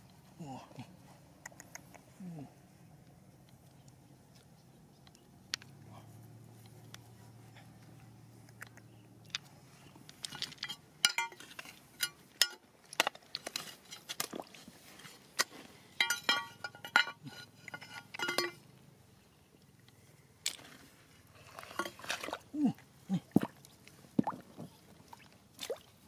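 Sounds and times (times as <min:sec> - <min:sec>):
metal tool scraping on rock: 0:16.0 - 0:18.6.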